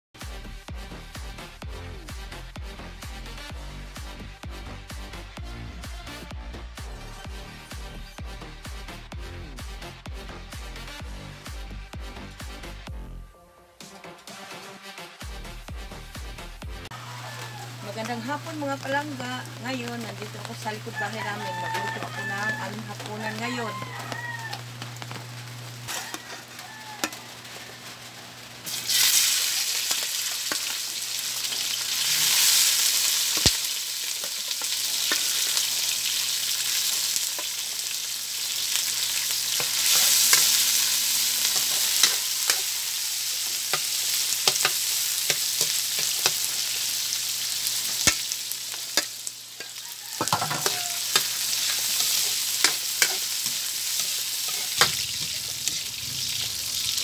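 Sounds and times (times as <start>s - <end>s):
meat sizzling in a wok: 16.9s - 57.0s
sharp pops of frying: 21.6s - 57.0s
metal spatula scraping a pan: 25.9s - 30.8s, 31.5s - 35.8s, 38.7s - 46.8s, 47.6s - 57.0s.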